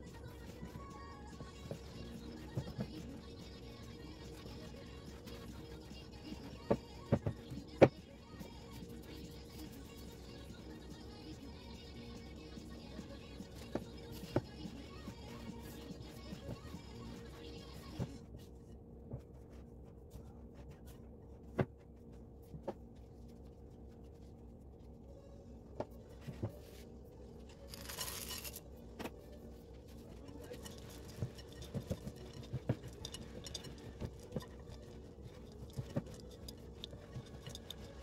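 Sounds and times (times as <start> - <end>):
spatula scraping glass bowl: 30.2 - 38.0.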